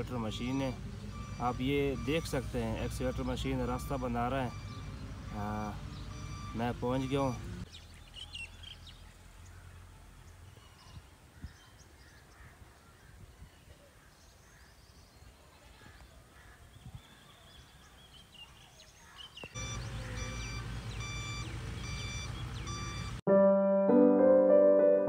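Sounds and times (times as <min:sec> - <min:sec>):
faint bird calls: 0:10.4 - 0:23.1
electric piano music: 0:21.3 - 0:25.0.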